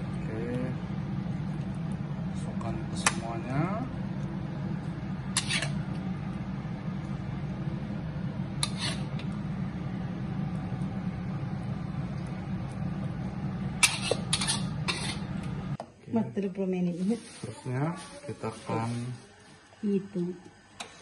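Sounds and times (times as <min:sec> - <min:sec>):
steady low hum: 0:00.0 - 0:16.7.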